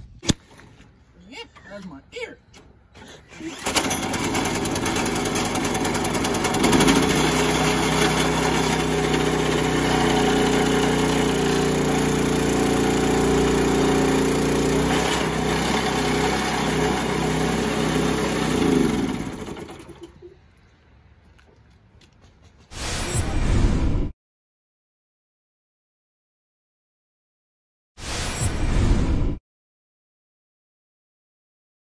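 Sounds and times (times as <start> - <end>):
small gas engine running: 3.3 - 20.3.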